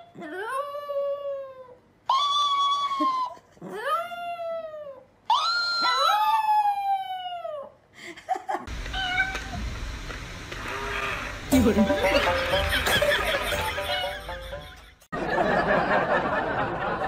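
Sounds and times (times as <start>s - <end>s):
steady hiss with faint tones: 7.9s - 15.1s.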